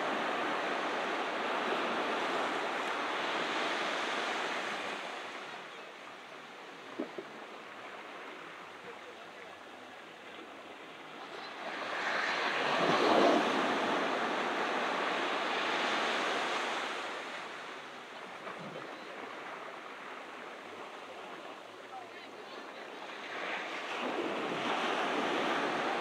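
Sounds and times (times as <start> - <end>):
ocean surf on a beach: 0.0 - 26.0.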